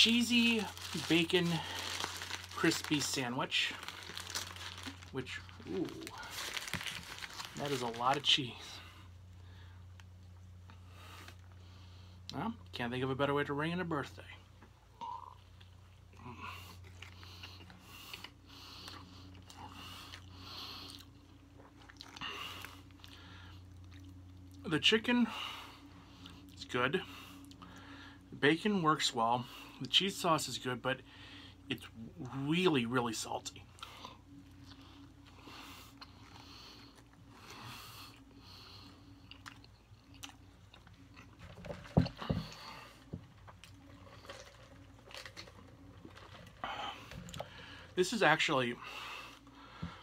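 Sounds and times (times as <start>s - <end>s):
faint low hum: 0.0s - 50.0s
crunchy chewing: 15.2s - 24.6s, 33.8s - 47.8s.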